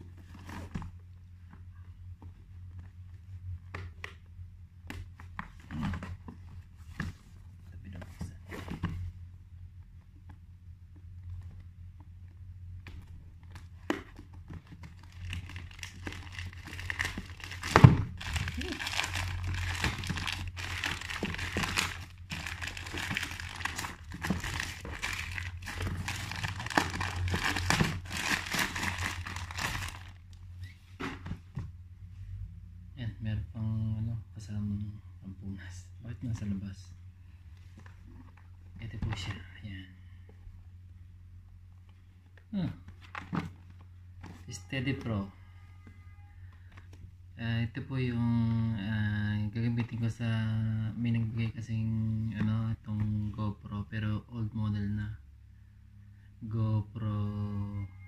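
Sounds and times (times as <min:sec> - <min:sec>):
steady low hum: 0:00.0 - 0:58.0
plastic tearing: 0:14.8 - 0:30.2
plastic wrap crinkling: 0:14.8 - 0:30.3.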